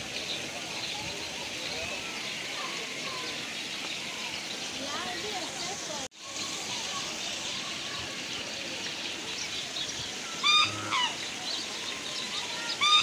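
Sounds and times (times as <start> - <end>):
small birds chirping: 0.1 - 13.0
waterfowl honking: 10.4 - 11.2.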